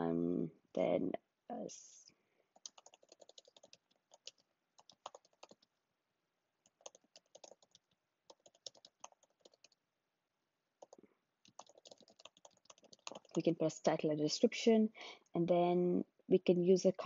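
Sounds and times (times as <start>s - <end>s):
keyboard typing: 2.6s - 5.7s, 6.6s - 9.8s, 10.8s - 13.5s.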